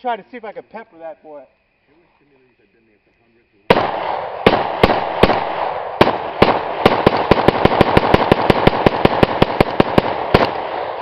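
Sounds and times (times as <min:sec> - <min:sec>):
gunshot echo: 0:03.7 - 0:11.0
rifle firing rapidly: 0:03.7 - 0:11.0.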